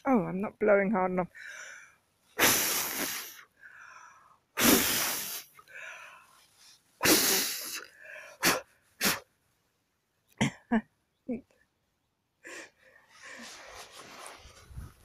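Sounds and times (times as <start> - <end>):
short breath puffs: 1.4 - 9.3, 12.4 - 14.9
person blowing hard: 2.4 - 3.5, 4.6 - 5.6, 7.0 - 9.3.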